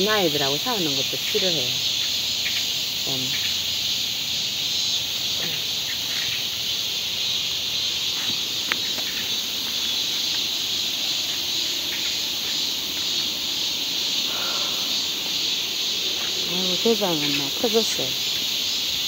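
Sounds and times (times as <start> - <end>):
insects chorus: 0.0 - 19.0.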